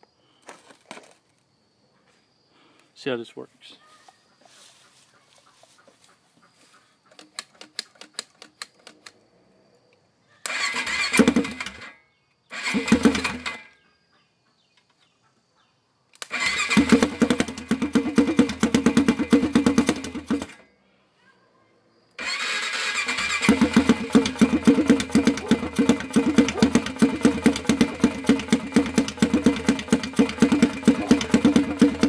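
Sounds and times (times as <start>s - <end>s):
engine cranking by starter: 10.4s - 13.7s, 16.2s - 20.6s, 22.2s - 32.0s
sharp solenoid clicks: 16.1s - 16.5s.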